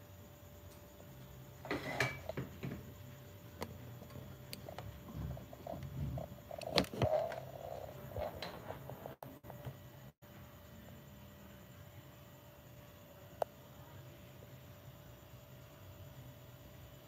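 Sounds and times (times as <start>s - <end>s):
faint steady hum: 0.0s - 17.0s
light kitchen clicks and knocks: 1.7s - 2.9s.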